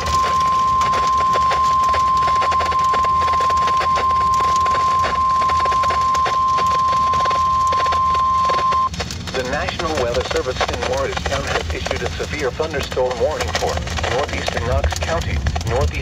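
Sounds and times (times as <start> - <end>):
long alarm beep: 0.0 - 8.9
radio static crackling: 0.0 - 16.0.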